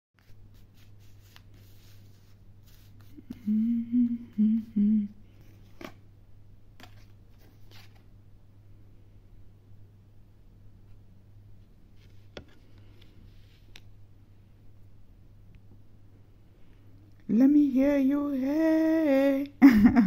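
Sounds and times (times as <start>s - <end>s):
faint steady hum: 0.2s - 20.0s
person humming a tune: 3.0s - 5.3s, 17.3s - 19.7s
cards rustling and clicking: 6.8s - 8.1s.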